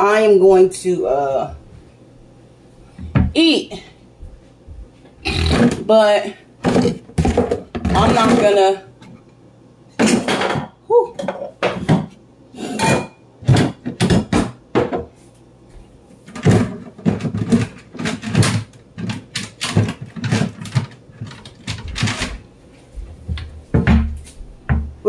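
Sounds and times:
things clattering on kitchen counter: 6.6 - 9.2, 10.0 - 15.2, 16.2 - 22.4.

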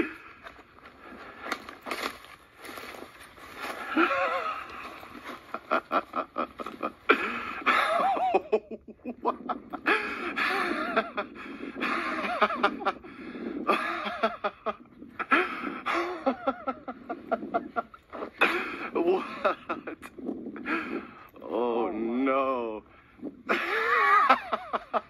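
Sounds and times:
people laughing: 3.6 - 21.1, 23.4 - 25.0.

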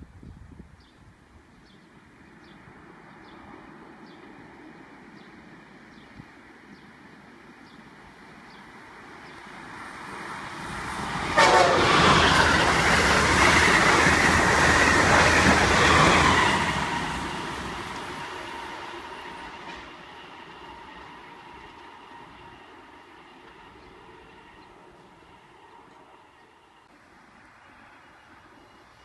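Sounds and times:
high-speed train passing: 1.2 - 29.0.

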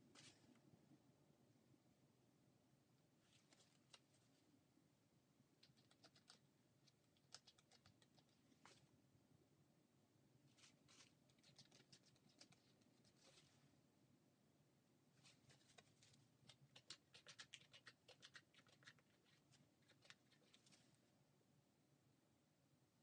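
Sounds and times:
palette knife dabbing paint: 15.2 - 20.8.

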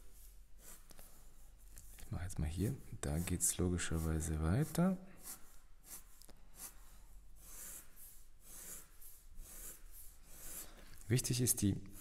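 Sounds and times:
felt-tip pen scratching paper: 3.0 - 10.8.

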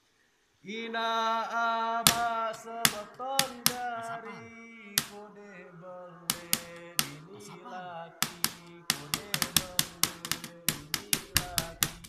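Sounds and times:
man singing into a microphone: 0.6 - 12.0
sharp percussive hits: 2.1 - 3.9, 5.0 - 5.2, 6.3 - 7.3, 8.2 - 12.0.

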